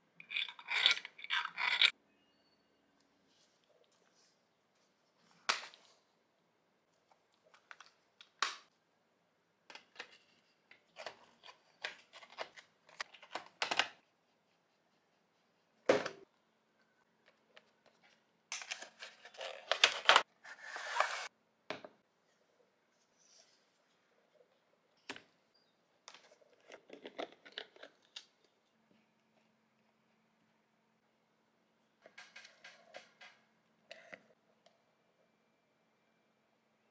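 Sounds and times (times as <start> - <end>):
plastic rustling and scraping: 17.8 - 21.3.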